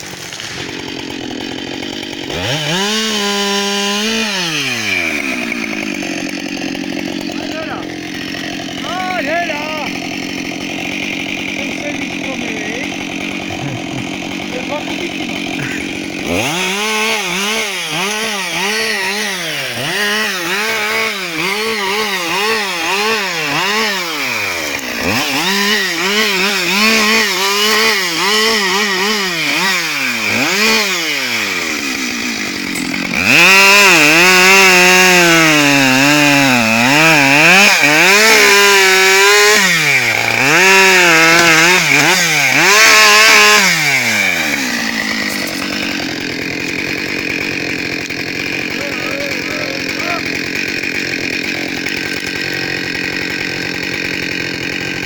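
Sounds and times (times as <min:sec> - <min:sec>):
chainsaw revving: 0:00.0 - 0:55.0.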